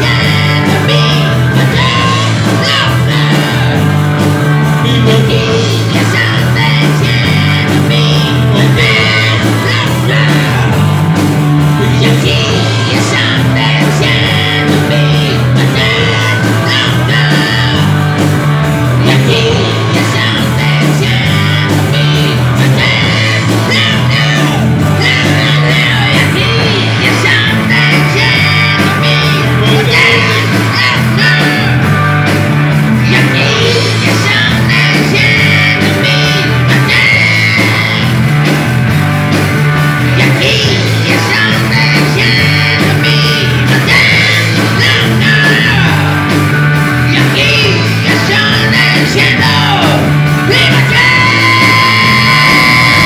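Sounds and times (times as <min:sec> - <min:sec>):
person singing: 0:00.0 - 0:38.6, 0:39.9 - 0:53.0
bass notes: 0:00.0 - 0:53.0
drums: 0:00.0 - 0:53.0
electric guitar: 0:00.0 - 0:53.0.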